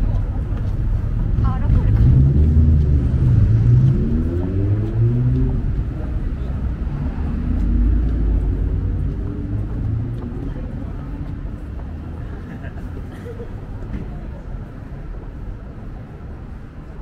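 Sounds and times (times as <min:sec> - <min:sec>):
engine speeding up: 0:00.0 - 0:12.2
traffic rumble: 0:00.0 - 0:17.0.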